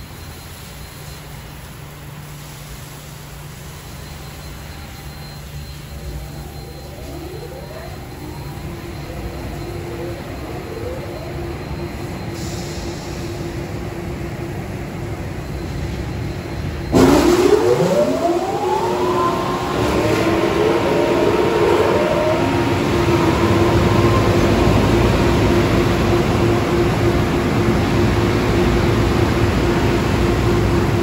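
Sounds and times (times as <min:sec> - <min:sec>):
fan motor whines rising: 0:04.4 - 0:31.0
dryer blowers rushing air: 0:06.0 - 0:15.5, 0:16.8 - 0:31.0.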